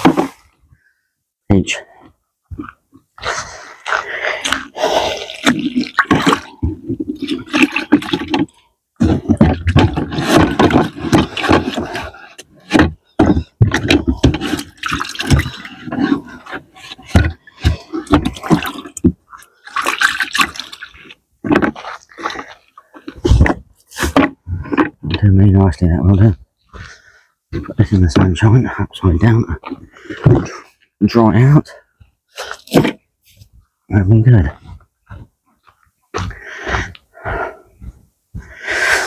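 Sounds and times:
water sloshing and splashing: 2.6 - 25.0.

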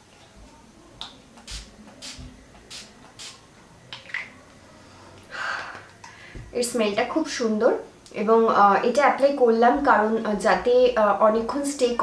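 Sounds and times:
spray bottle hissing: 1.4 - 3.4.

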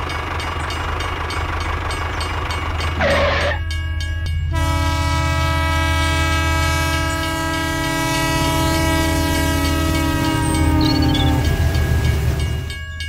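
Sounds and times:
toy train horn: 3.0 - 3.7, 4.5 - 11.8.

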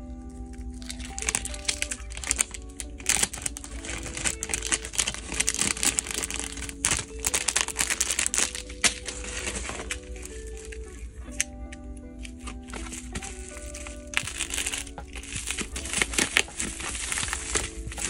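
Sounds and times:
quiet music: 0.0 - 18.0
plastic bags crinkling: 0.1 - 11.5, 12.1 - 18.0.

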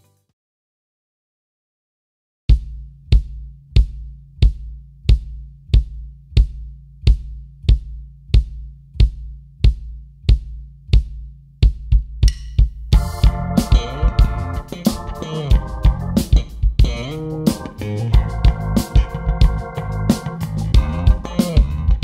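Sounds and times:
kick drum strokes: 2.5 - 22.0
music with guitar: 13.0 - 22.0.

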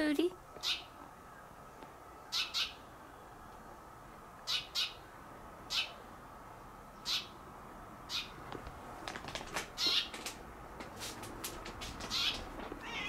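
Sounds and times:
bird chirping: 0.6 - 3.5, 4.4 - 6.1, 6.9 - 7.4, 8.1 - 8.4, 12.1 - 12.4.

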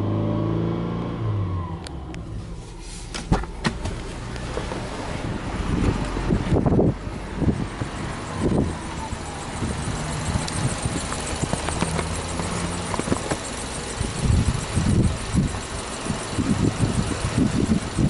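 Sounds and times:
car engine idling: 1.4 - 18.0.

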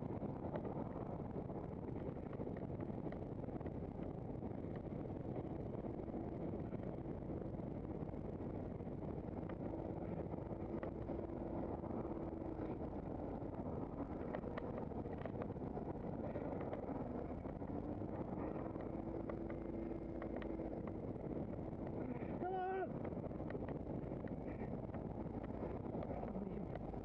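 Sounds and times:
faint hum: 0.0 - 27.0
road travel rumble: 0.0 - 27.0.

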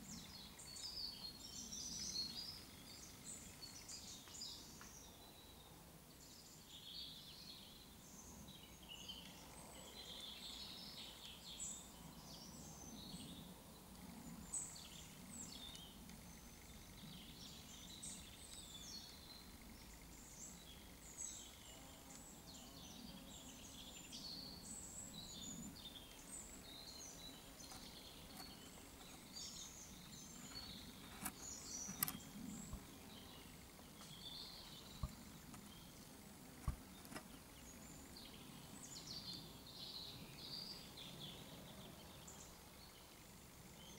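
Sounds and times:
songbirds chirping: 0.0 - 43.9
sharp clicks: 31.1 - 32.4.

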